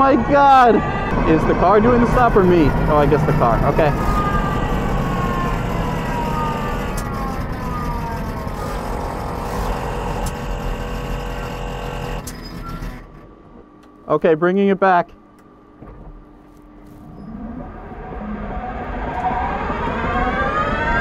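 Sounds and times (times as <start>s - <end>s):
road and wind noise: 0.0s - 12.4s, 16.9s - 21.0s
electric drivetrain whine: 0.0s - 13.3s, 16.4s - 21.0s.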